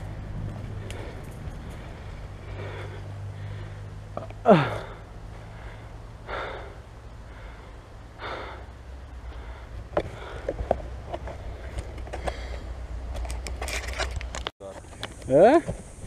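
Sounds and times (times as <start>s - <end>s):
steady low hum: 0.0s - 13.6s
person breathing hard: 0.7s - 12.9s.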